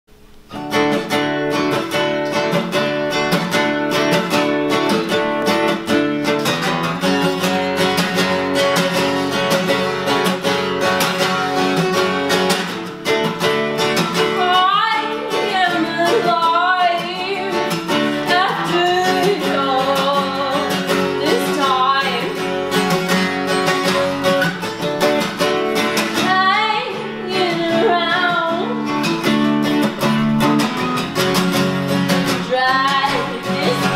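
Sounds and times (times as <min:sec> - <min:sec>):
acoustic guitar strumming: 0:00.1 - 0:33.9
person singing: 0:14.1 - 0:23.1, 0:25.9 - 0:29.2, 0:32.2 - 0:33.9.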